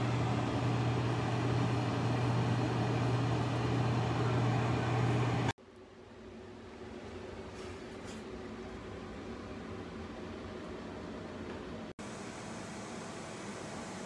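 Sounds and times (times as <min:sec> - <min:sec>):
air fryer fan and motor hum: 0:00.0 - 0:14.0.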